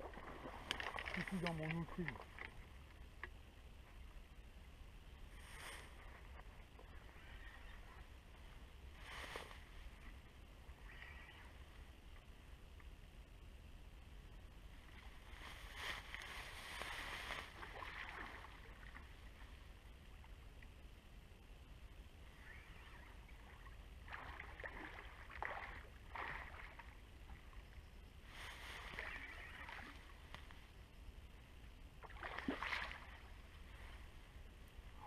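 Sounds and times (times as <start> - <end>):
water splashing and sloshing: 0.0 - 3.3, 14.8 - 20.4, 22.6 - 30.6, 32.0 - 34.4.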